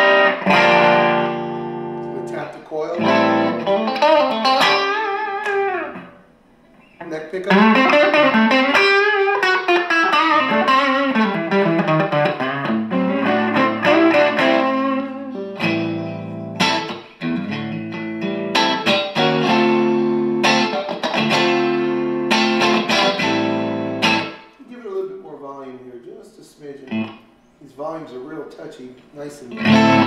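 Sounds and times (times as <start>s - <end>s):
clean electric guitar: 0.0s - 24.6s, 26.9s - 27.3s, 29.5s - 30.0s.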